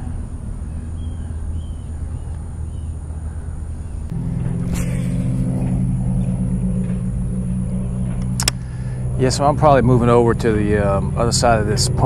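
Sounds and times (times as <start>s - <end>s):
motor drone: 4.0s - 12.0s
sharp click: 8.2s - 8.6s.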